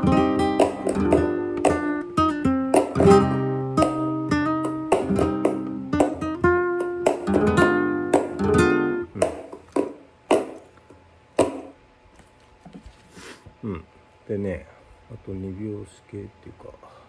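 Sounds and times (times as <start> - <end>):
sharp percussive strikes: 0.0 - 10.6
flamenco guitar playing: 0.0 - 10.7.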